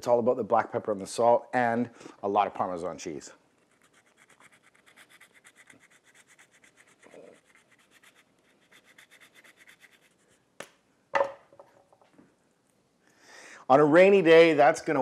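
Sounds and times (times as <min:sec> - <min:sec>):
cheese grating on a rasp grater: 0:03.7 - 0:10.2.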